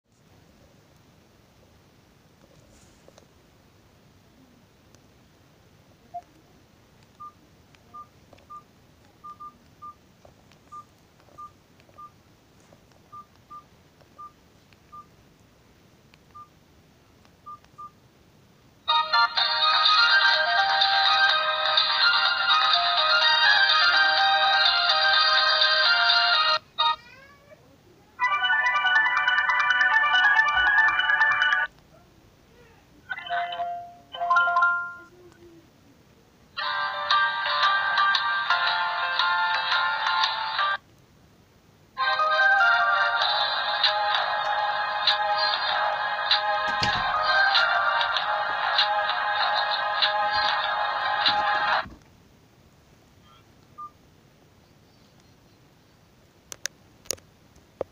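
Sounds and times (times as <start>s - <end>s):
phone keypad beeps: 7.2s - 8.6s, 9.2s - 10.0s, 14.2s - 15.1s, 16.3s - 16.5s, 17.4s - 18.0s
electronic ringtone melody: 28.2s - 31.7s.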